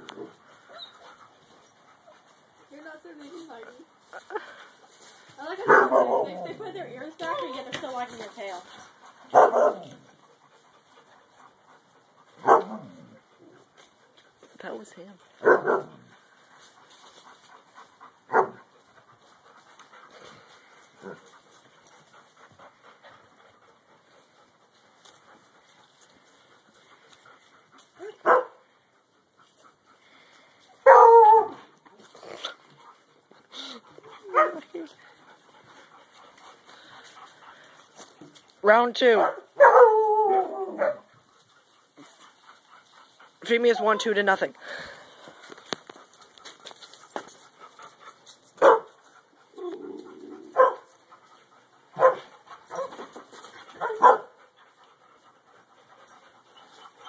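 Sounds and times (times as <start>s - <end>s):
puppy barking: 5.6s - 6.6s, 9.3s - 9.9s, 12.4s - 12.8s, 15.4s - 15.9s, 18.3s - 18.6s, 28.2s - 28.6s, 30.8s - 31.6s, 34.2s - 34.6s, 39.2s - 40.0s, 40.7s - 41.1s, 48.6s - 48.9s, 50.5s - 50.9s, 52.0s - 53.0s, 53.8s - 54.4s
low dog vocalization: 48.6s - 50.9s.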